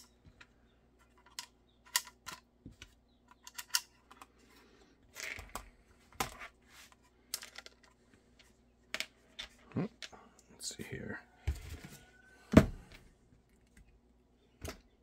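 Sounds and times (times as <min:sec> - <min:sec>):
hard plastic parts clicking: 0:00.0 - 0:04.3.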